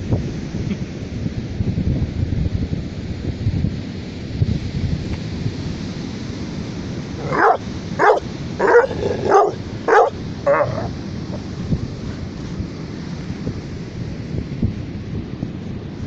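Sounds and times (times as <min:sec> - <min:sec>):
wind rumble on microphone: 0:00.0 - 0:16.0
dog barking: 0:07.2 - 0:11.4.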